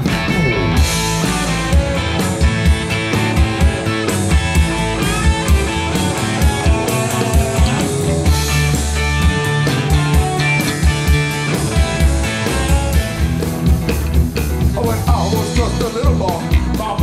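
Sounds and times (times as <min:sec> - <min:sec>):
bass guitar: 0:00.0 - 0:17.0
drum kit beat: 0:00.0 - 0:17.0
electric guitars: 0:00.0 - 0:17.0.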